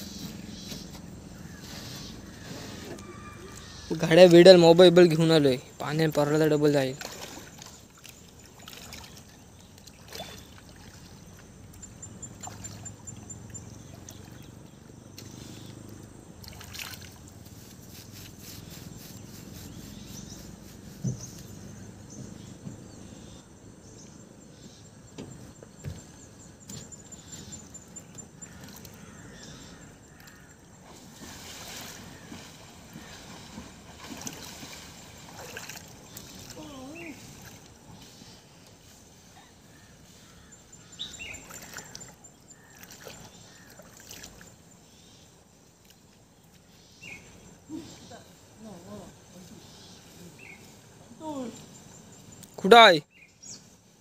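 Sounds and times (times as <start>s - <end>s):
water sloshing and trickling: 0.0s - 21.7s, 25.9s - 39.3s, 40.7s - 44.8s.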